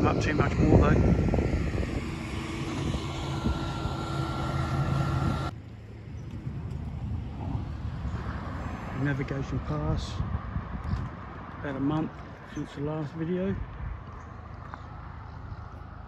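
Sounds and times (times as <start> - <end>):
boat engine humming: 0.0 - 8.6
steady background noise: 0.0 - 16.0.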